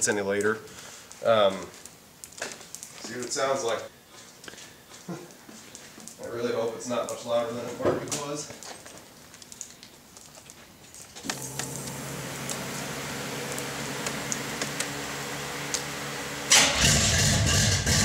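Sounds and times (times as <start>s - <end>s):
starter whirring hum: 11.2s - 18.0s
car engine firing up loudly: 11.3s - 18.0s.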